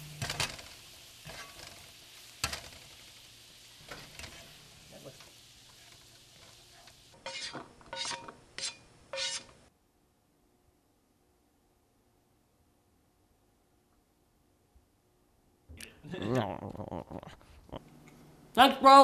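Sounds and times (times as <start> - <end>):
utensil scraping pan: 0.0 - 2.9, 3.8 - 4.8, 5.7 - 9.6
eggs sizzling in a frying pan: 0.0 - 9.7.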